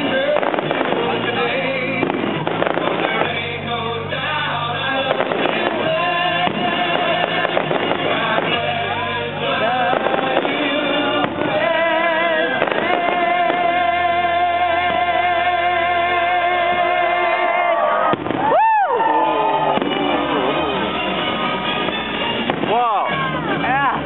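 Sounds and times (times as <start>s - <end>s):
music with singing voice: 0.0s - 18.3s
fireworks bangs: 0.0s - 23.8s.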